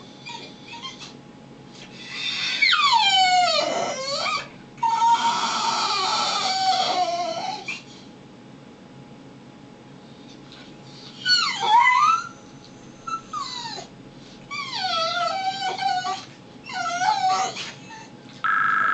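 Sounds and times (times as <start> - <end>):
dog whining: 0.0 - 1.2, 2.0 - 8.0, 11.0 - 18.2.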